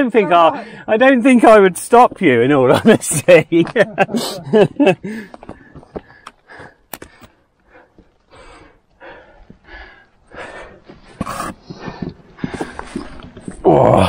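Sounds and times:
person breathing hard: 5.0s - 13.6s.

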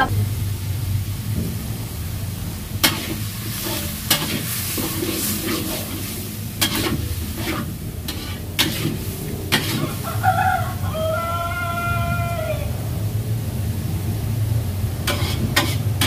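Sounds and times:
low sizzle: 0.0s - 16.0s
spatula scraping sauce in wok: 2.8s - 10.0s, 15.1s - 16.0s.

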